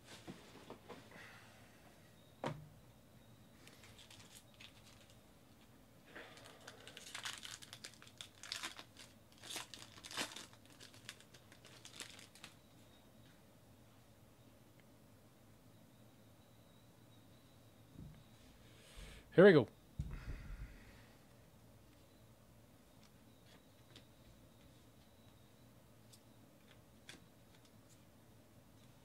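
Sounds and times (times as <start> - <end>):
foil wrapper crinkling: 3.6 - 5.2, 6.2 - 12.6.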